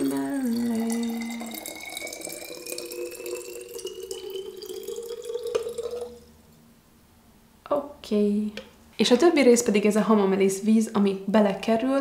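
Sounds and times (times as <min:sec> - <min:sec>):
water pouring into glass bottle: 0:00.0 - 0:06.3.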